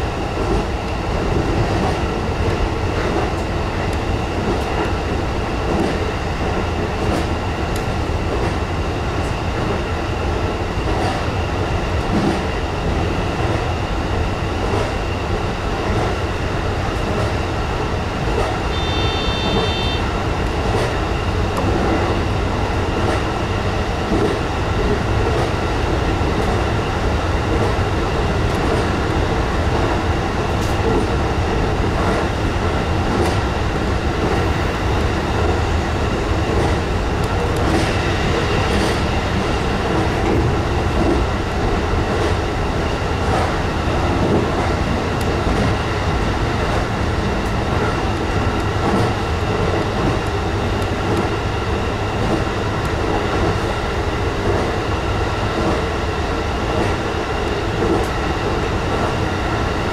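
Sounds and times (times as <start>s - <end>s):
electric train running in tunnel: 0.0s - 59.9s.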